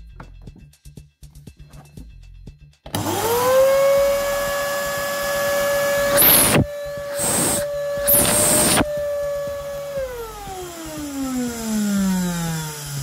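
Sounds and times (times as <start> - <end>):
vacuum cleaner motor whining: 2.9 - 13.0.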